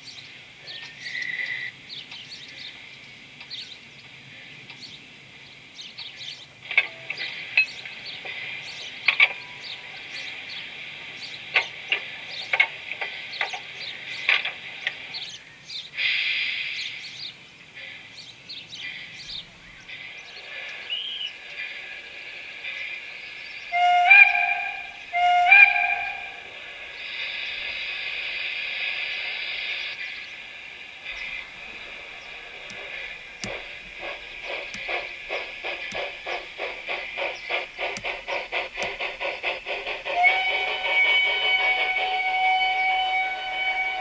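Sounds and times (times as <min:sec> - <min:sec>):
birds chirping: 0:00.0 - 0:16.0, 0:16.7 - 0:22.0, 0:29.3 - 0:41.1
steady high hiss: 0:26.2 - 0:40.2.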